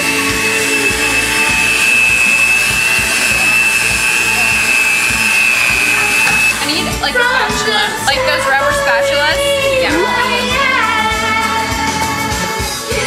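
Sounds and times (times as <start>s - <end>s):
electric mixer whining: 0.0s - 7.0s.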